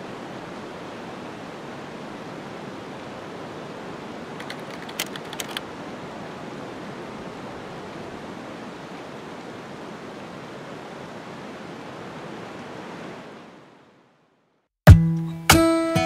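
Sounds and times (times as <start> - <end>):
river rushing: 0.0 - 14.2
gear clicks: 4.4 - 5.6.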